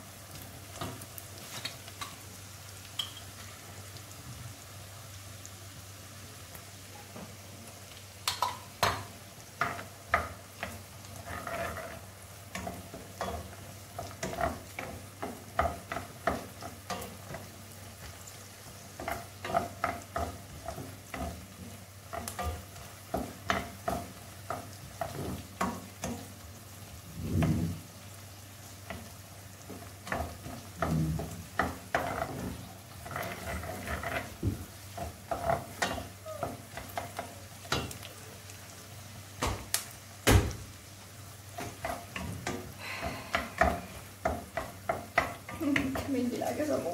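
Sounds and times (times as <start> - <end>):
onions sizzling in a pan: 0.0 - 46.9
wooden spoon scraping a pan: 8.8 - 28.0, 28.7 - 38.8, 41.5 - 46.9.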